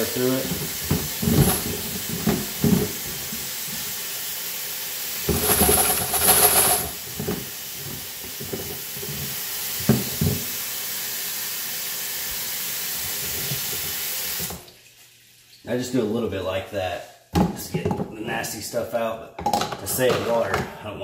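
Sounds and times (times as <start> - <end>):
faucet water running: 0.0 - 16.3.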